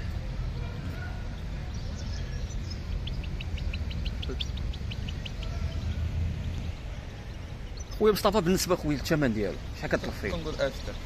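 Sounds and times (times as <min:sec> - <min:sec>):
steady low rumble: 0:00.0 - 0:08.4
finch chirping: 0:01.7 - 0:06.9, 0:07.6 - 0:08.4.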